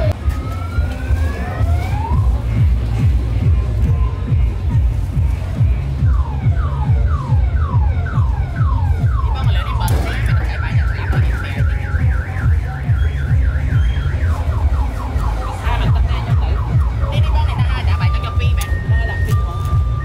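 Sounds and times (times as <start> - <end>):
electronic dance music: 0.0 - 20.0
siren-like electronic whoop: 0.2 - 2.3.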